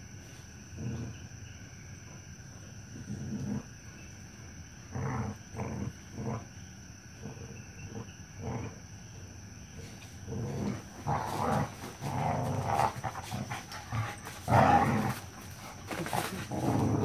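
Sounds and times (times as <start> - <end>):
dogs growling in play: 0.3 - 4.1, 4.8 - 17.0.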